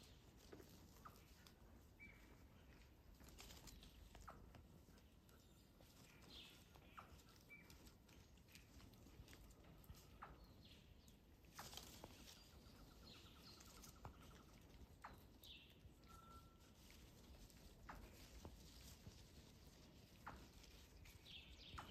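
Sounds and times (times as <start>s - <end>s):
leaves and twigs snapping: 2.1s - 4.6s, 11.0s - 15.6s.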